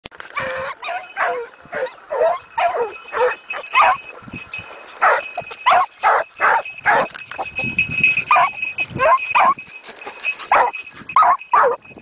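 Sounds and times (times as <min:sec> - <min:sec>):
dogs barking: 0:00.4 - 0:04.1, 0:05.0 - 0:07.1, 0:10.5 - 0:11.8.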